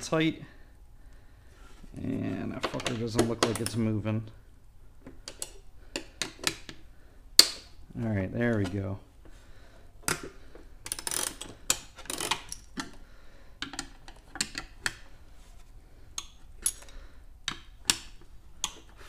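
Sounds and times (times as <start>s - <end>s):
wrench clicking on metal nuts: 10.1s - 13.0s, 16.2s - 16.9s
wrench scraping: 10.1s - 13.0s.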